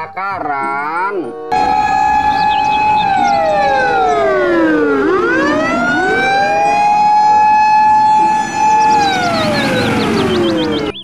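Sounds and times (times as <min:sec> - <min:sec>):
fire truck siren wailing: 0:01.4 - 0:11.0.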